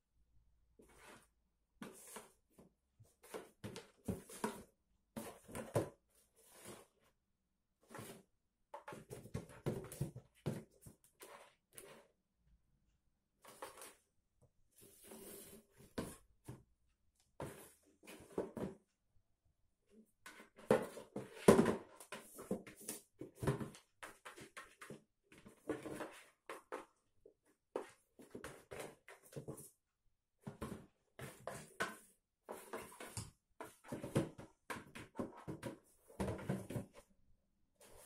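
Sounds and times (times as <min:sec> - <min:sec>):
cardboard box scraping on floor: 0:14.8 - 0:16.2.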